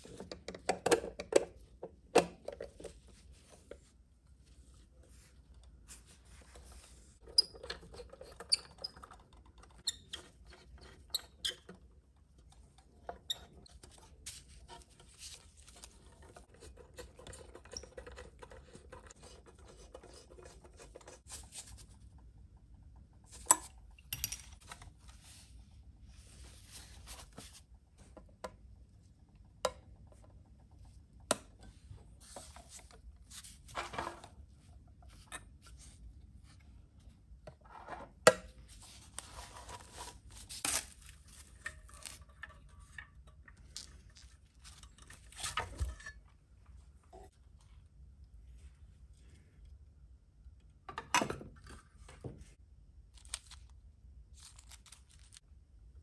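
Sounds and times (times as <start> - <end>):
tools clicking and tapping: 23.3 - 24.7.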